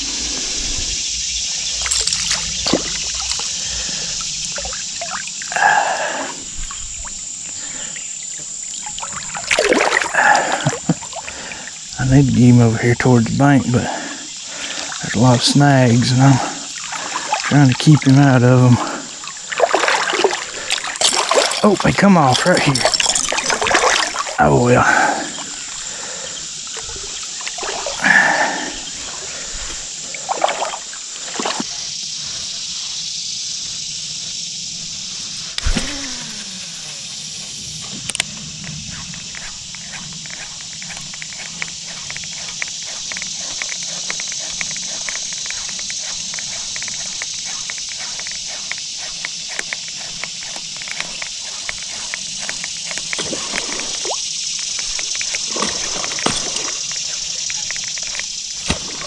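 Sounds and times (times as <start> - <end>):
high hiss: 0.0 - 59.0
fishing line whirring off spool: 34.9 - 59.0
fishing reel ticking: 35.4 - 58.7.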